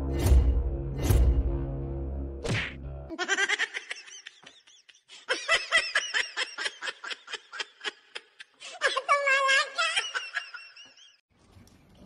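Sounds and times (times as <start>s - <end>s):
high-pitched laughing: 3.1s - 11.2s.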